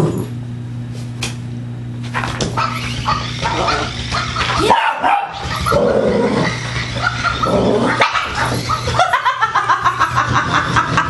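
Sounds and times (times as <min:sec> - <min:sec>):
dog barking and growling: 0:02.6 - 0:09.8
person chuckling: 0:08.7 - 0:11.0.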